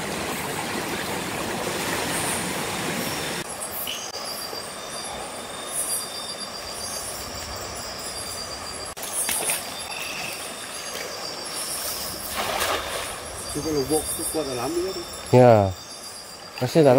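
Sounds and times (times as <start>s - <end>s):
river water rushing: 0.0s - 4.1s
insects chirping: 1.8s - 16.9s
insects trilling: 3.0s - 16.9s.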